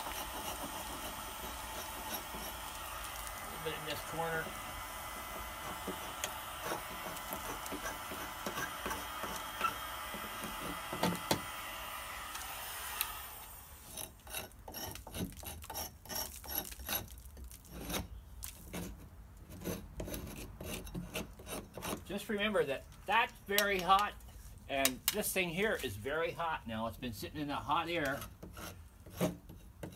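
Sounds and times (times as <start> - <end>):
scraper rasping on painted wood: 0.0 - 11.5, 13.8 - 22.3, 27.8 - 29.9
electric heat gun blowing: 0.0 - 13.9.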